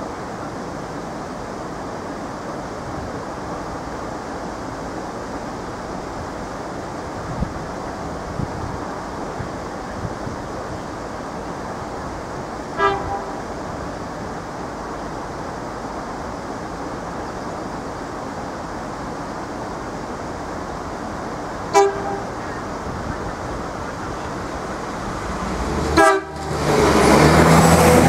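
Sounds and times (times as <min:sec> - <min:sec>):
wind noise: 0:00.0 - 0:28.0
train horn toots: 0:12.8 - 0:13.5, 0:21.7 - 0:22.5, 0:25.8 - 0:26.6.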